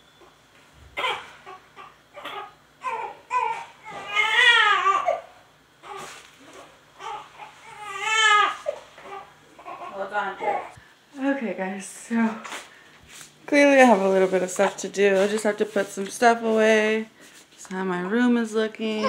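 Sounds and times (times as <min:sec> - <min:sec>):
baby crying: 0:01.0 - 0:10.8.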